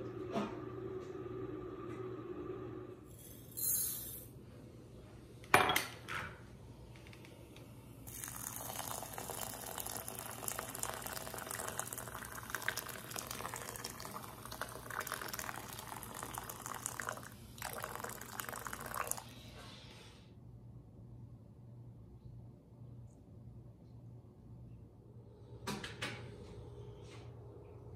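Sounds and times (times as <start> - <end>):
water pouring into a glass bowl: 8.1 - 19.4.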